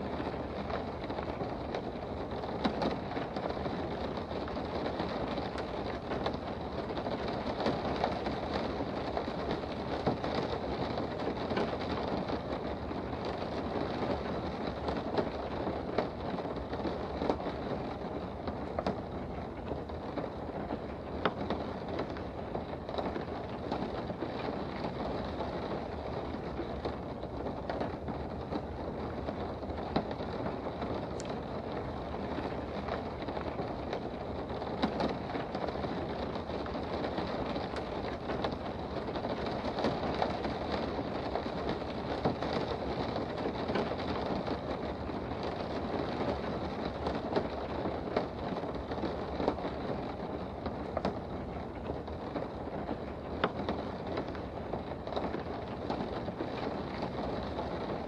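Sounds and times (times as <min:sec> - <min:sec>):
rain hissing on car: 0:00.0 - 0:58.0
raindrops tapping on glass: 0:00.0 - 0:58.0.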